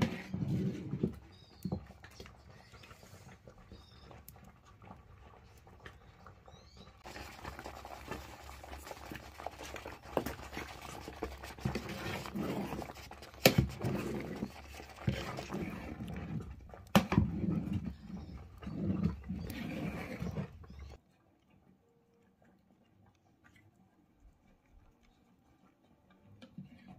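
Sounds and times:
ladle scraping in pot: 0.0s - 3.3s, 7.0s - 21.0s.

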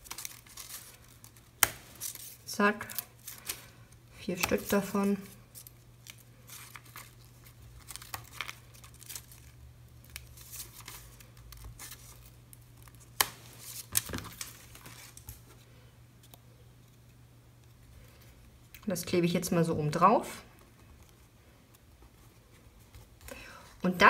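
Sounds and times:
paper rustling and crinkling: 0.0s - 3.8s, 4.4s - 15.7s.

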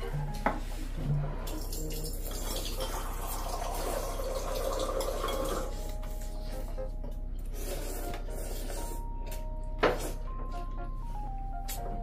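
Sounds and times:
water running: 1.3s - 6.5s.

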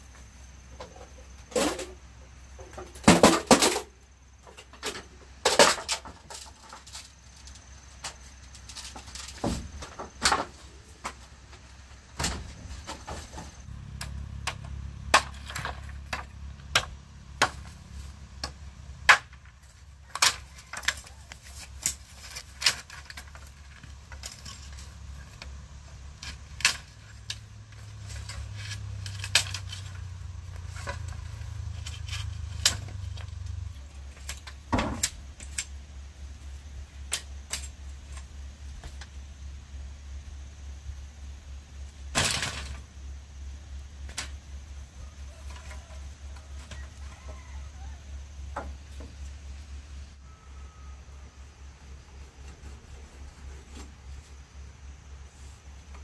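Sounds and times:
low steady hum: 0.0s - 56.0s.

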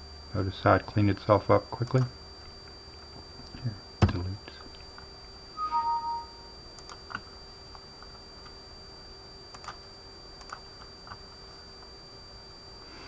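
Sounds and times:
faint steady hum: 0.0s - 13.0s
two-note computer alert chime: 5.6s - 6.5s.

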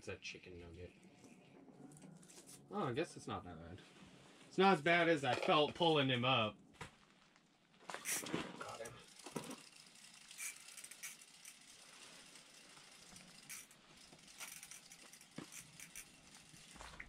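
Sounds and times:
fishing reel clicking: 8.0s - 16.9s.

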